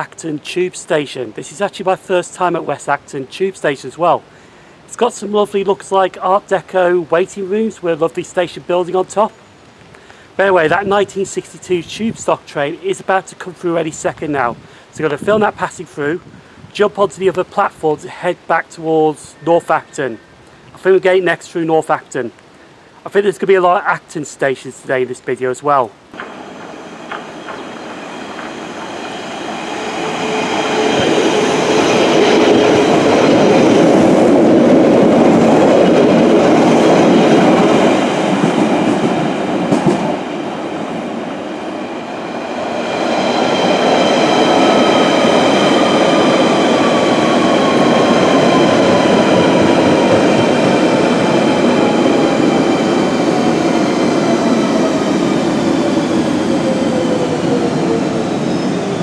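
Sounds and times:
train passing through station: 26.0s - 59.0s
train whine falling in pitch: 26.2s - 40.2s, 41.8s - 59.0s.

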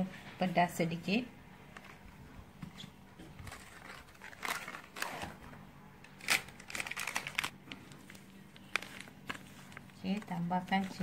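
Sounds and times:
plastic packet crinkling: 3.4s - 5.4s, 6.0s - 11.0s.

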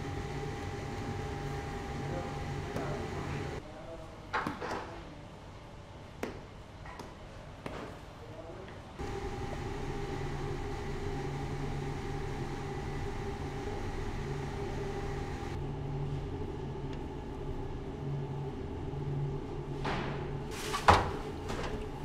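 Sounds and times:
bakery machinery humming: 0.0s - 3.6s, 9.0s - 22.0s.

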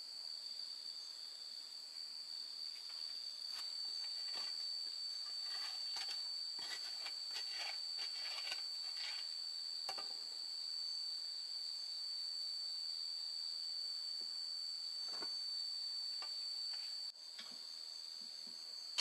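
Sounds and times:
crickets chirring: 0.0s - 19.0s
firewood being handled: 2.8s - 9.3s.

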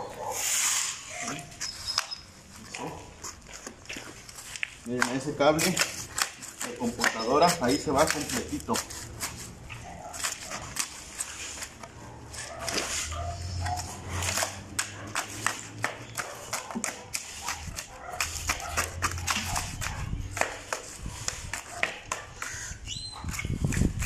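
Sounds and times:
metal shovels scraping and knocking: 5.0s - 17.6s.

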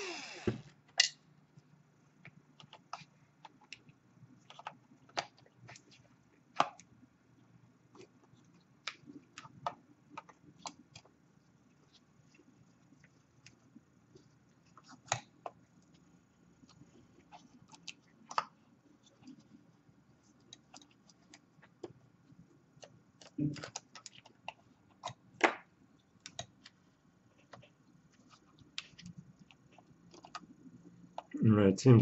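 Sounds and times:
small clicks and taps of laptop parts: 22.8s - 26.8s.

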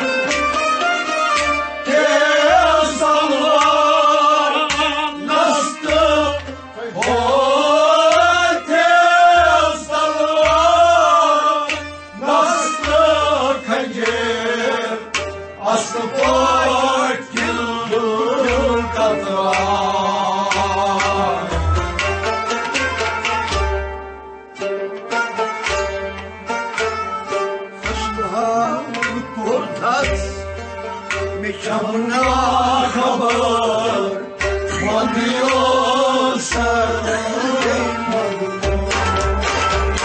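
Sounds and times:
man singing: 1.8s - 21.8s, 27.9s - 30.5s, 31.4s - 39.2s.

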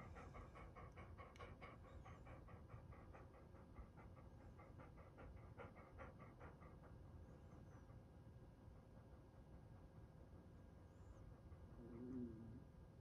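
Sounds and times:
dog panting: 0.0s - 8.2s.

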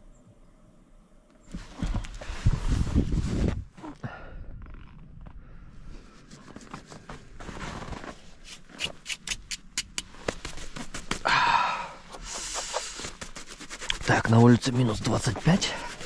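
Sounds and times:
clothing rustling: 1.4s - 4.0s, 6.0s - 9.0s, 10.1s - 11.3s, 12.0s - 16.0s
crunching in snow: 6.1s - 9.2s.

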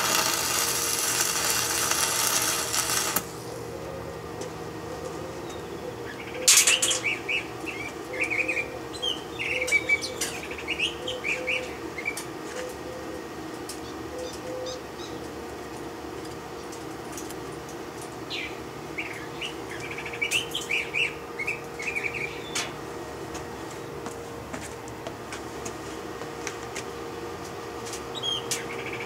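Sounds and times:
welding arc crackling: 0.0s - 3.5s, 6.5s - 7.2s
birds chirping: 3.5s - 15.4s, 18.2s - 22.8s, 28.1s - 29.0s.

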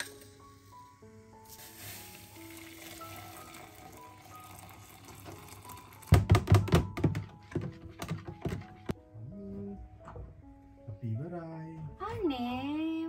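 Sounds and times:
water poured into cup: 1.5s - 6.1s.

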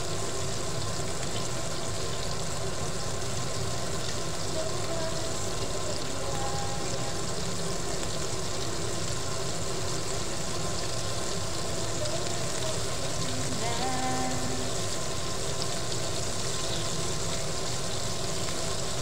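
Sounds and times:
chicken frying in hot oil: 0.0s - 19.0s
steady low hum: 12.7s - 15.5s.

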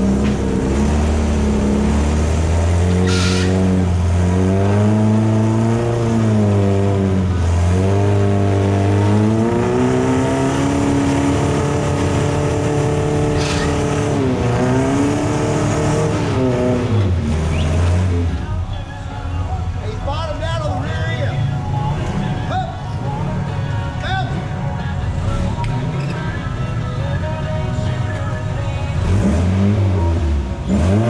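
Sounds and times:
utility vehicle engine revving: 0.0s - 18.6s, 24.3s - 31.0s.

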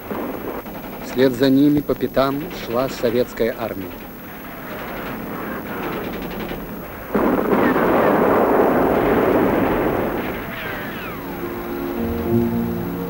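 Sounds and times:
explosions and gunfire: 0.0s - 2.4s, 3.1s - 11.6s
loud blast: 7.1s - 12.9s
falling whistles: 9.6s - 13.0s.

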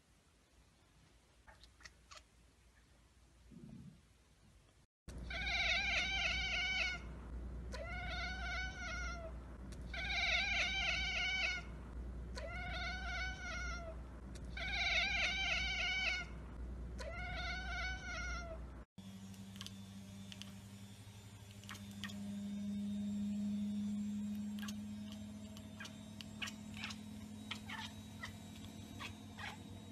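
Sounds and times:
quiet steady hum: 0.0s - 29.9s
cat chattering: 25.8s - 28.4s, 29.0s - 29.6s.

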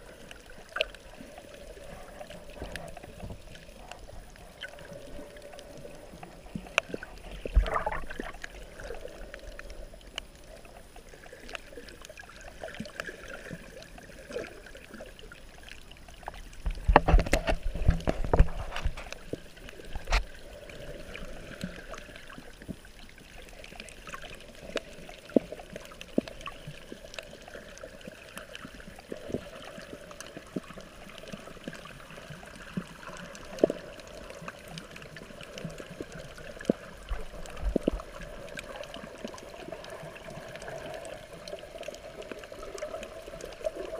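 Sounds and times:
muffled water sloshing and gurgling: 0.0s - 43.9s
low knocks and splashes: 7.5s - 8.4s, 16.6s - 19.1s.

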